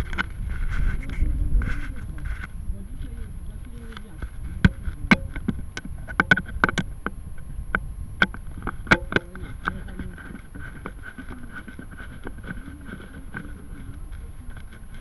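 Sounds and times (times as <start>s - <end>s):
wind rumbling on microphone: 0.0s - 15.0s
sharp clicks or knocks: 7.7s - 9.8s.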